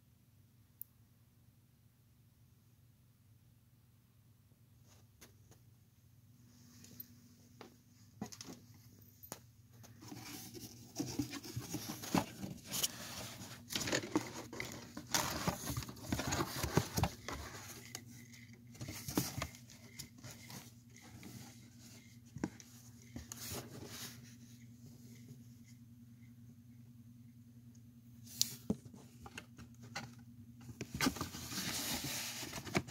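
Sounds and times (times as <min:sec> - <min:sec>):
faint low hum: 0:00.0 - 0:32.9
cardboard rustling and scraping: 0:09.8 - 0:25.4, 0:28.3 - 0:32.9.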